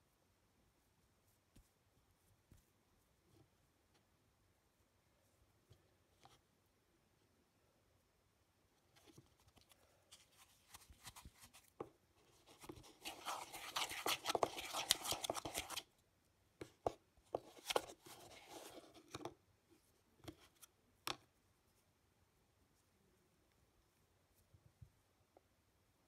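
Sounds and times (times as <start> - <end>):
slime scraping around bowl: 12.7 - 15.8.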